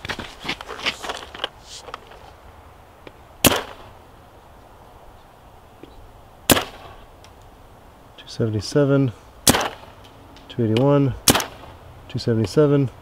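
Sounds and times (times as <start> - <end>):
paintball marker shots: 3.4 - 3.9, 6.5 - 7.0, 9.4 - 10.0, 11.2 - 11.7.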